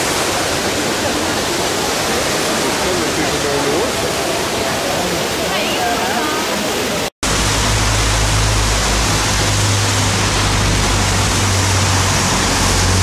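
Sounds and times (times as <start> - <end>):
rain hissing: 0.0 - 13.0
low rumble: 7.2 - 13.0.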